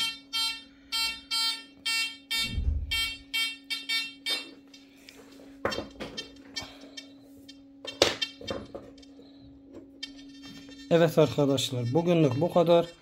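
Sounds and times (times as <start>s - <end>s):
metal detector beeping: 0.0s - 4.9s, 5.6s - 13.0s
steady low hum: 0.0s - 13.0s.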